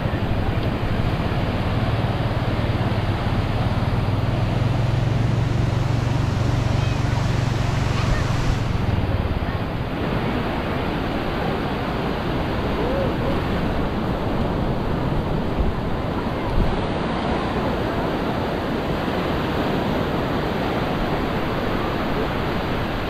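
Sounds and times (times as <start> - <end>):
ocean surf breaking: 0.0 - 23.0
wind on microphone: 0.0 - 23.0
faint voices: 6.0 - 23.0.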